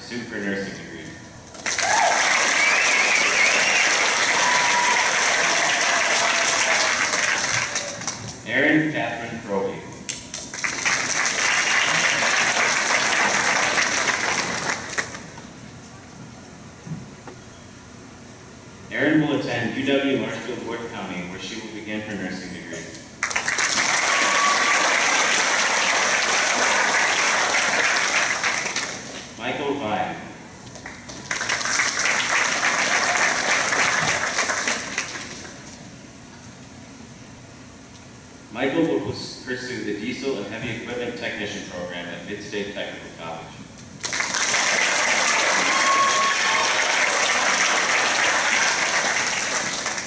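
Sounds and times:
crowd applause: 0:01.6 - 0:08.3, 0:10.5 - 0:15.3, 0:23.2 - 0:29.2, 0:30.8 - 0:35.6, 0:44.0 - 0:50.0.

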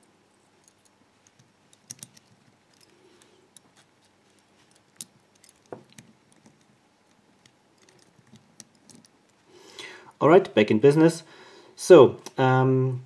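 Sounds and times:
small metallic clicks: 0:00.4 - 0:09.4.

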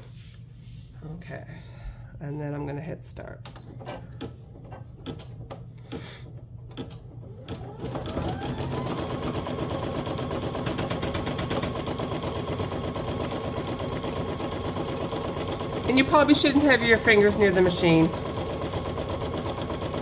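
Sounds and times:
embroidery machine stitching: 0:04.2 - 0:20.0.

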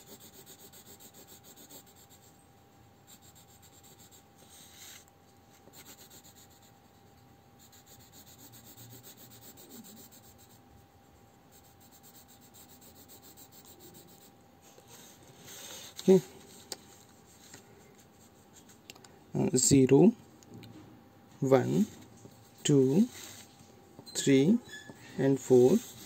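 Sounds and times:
pencil scratching on paper: 0:00.0 - 0:02.4, 0:03.0 - 0:16.1, 0:24.1 - 0:26.0.

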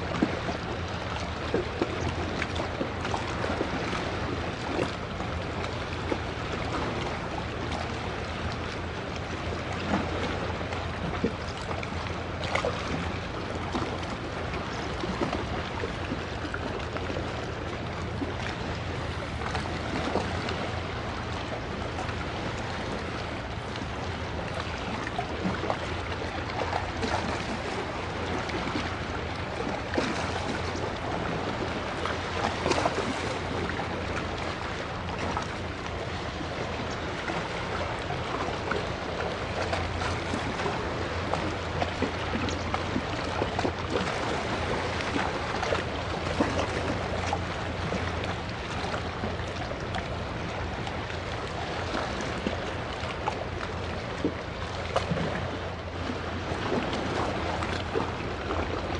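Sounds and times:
constant low rumble: 0:00.0 - 0:58.9
sea water lapping and splashing: 0:00.0 - 0:58.9.

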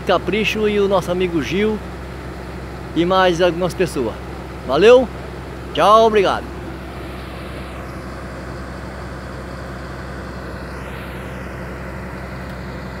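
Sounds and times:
excavator diesel engine droning: 0:00.0 - 0:13.0.

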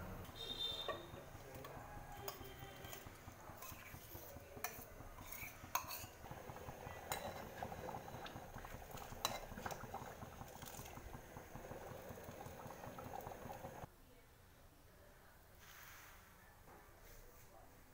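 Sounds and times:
ladle scraping steel pot: 0:00.6 - 0:11.2
curry being poured: 0:01.0 - 0:13.9.

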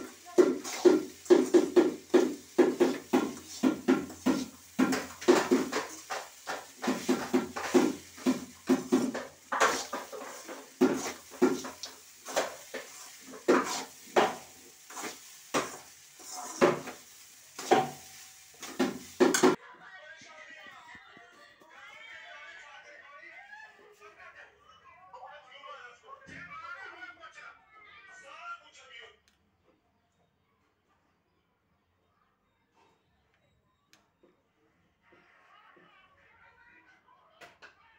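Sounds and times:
metal spoon scraping a pan: 0:00.0 - 0:19.6.

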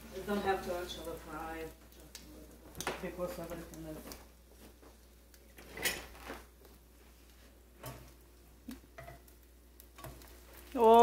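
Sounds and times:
bread frying with faint sizzle: 0:00.0 - 0:11.0
kitchen clicks and knocks: 0:05.6 - 0:06.2.

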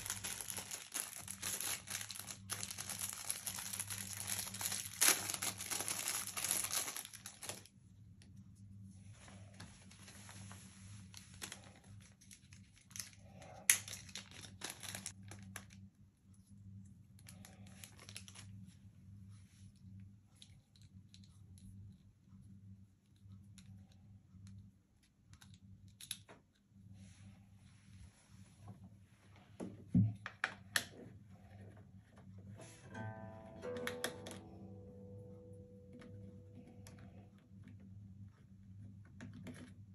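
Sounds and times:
packaging crinkling: 0:00.0 - 0:07.7, 0:11.1 - 0:15.8, 0:17.2 - 0:18.5
low steady hum: 0:00.0 - 0:39.9.

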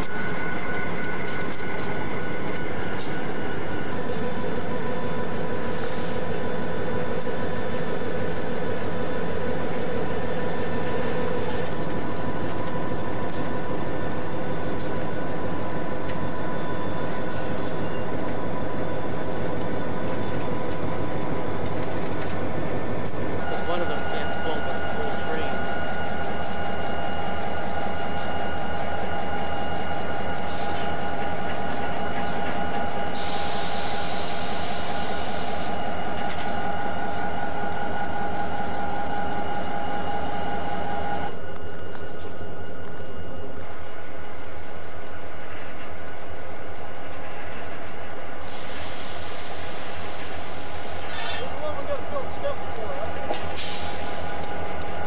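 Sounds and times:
high whine: 0:00.0 - 0:55.0
locomotive engine idling: 0:00.0 - 0:55.0
air hiss: 0:33.1 - 0:35.7, 0:48.4 - 0:51.4.

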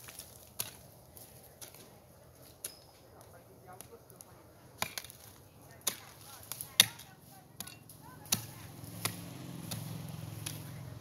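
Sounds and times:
hoe chopping dry earth: 0:00.0 - 0:01.9, 0:04.8 - 0:11.0.

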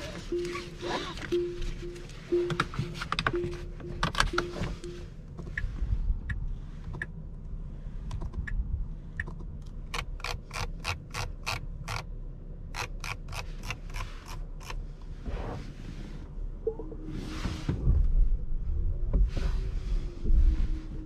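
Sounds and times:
low steady rumble: 0:00.0 - 0:21.0
sharp mechanical clicks: 0:09.2 - 0:12.1, 0:12.7 - 0:14.8.

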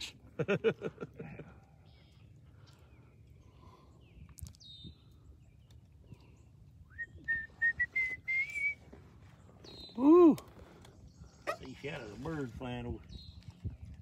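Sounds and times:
whistled notes: 0:06.9 - 0:08.9.

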